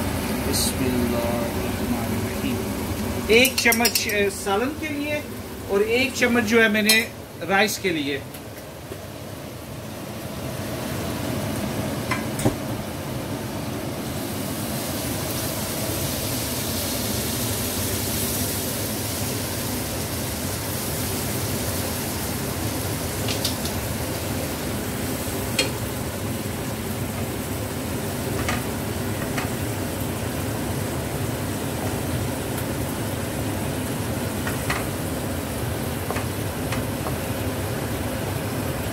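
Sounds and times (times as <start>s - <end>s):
paste sizzling in hot oil: 14.0s - 26.2s.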